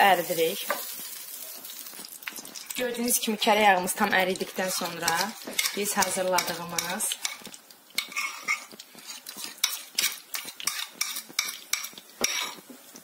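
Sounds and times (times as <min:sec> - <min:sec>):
butter sizzling in a pan: 0:00.0 - 0:13.0
metal spoon scraping a bowl: 0:04.6 - 0:12.6.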